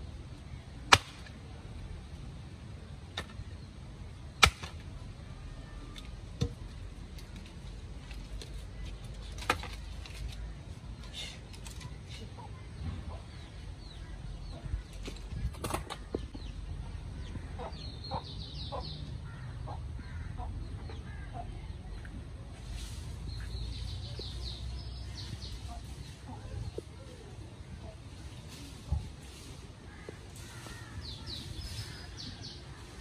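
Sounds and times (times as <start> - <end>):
birds chirping: 5.3 - 33.0
chickens clucking: 17.2 - 21.7.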